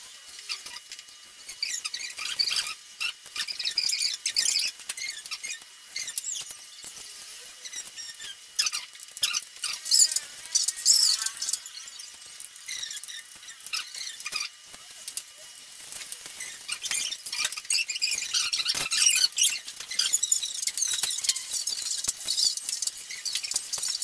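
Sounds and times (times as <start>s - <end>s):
plastic scraping and squeaking: 12.6s - 14.5s, 15.9s - 24.0s.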